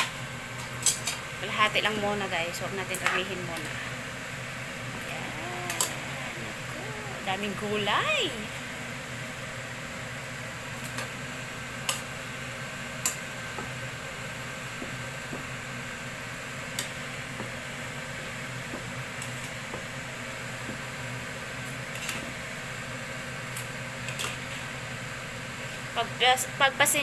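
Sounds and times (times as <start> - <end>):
vegetables stir-frying hiss: 5.0 - 7.3.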